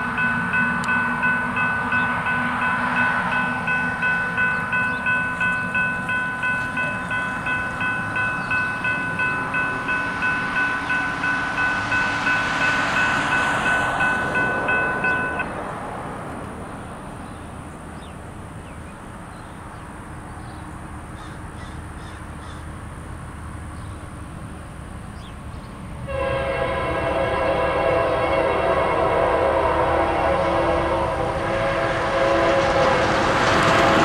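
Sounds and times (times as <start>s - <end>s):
railroad crossing bell ringing: 0.0s - 15.7s
low rumble of train: 0.0s - 34.0s.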